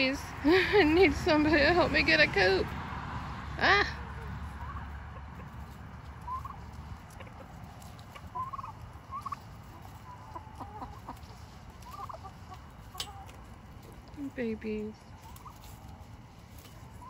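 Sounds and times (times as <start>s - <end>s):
poultry clucking softly: 4.2s - 14.2s, 15.0s - 17.0s.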